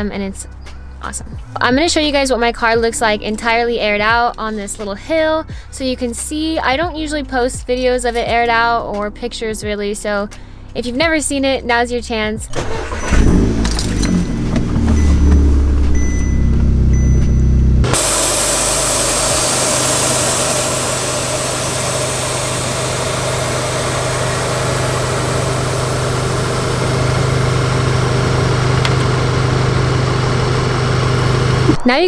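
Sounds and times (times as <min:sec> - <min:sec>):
car engine idling: 0:12.5 - 0:31.8
air suspension hissing: 0:17.8 - 0:31.8.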